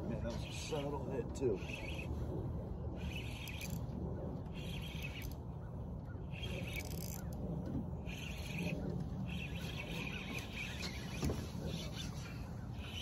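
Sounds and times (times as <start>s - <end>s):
low rumble of wind: 0.0s - 13.0s
spinning reel whirring: 1.6s - 2.2s, 3.0s - 3.9s, 4.5s - 5.4s, 6.3s - 7.4s, 8.0s - 13.0s.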